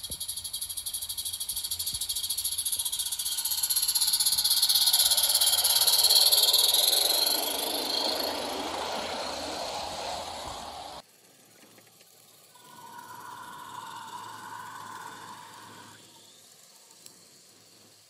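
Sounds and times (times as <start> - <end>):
steam locomotive chuffing: 1.1 - 11.1
wheels rumbling on track: 3.4 - 16.0.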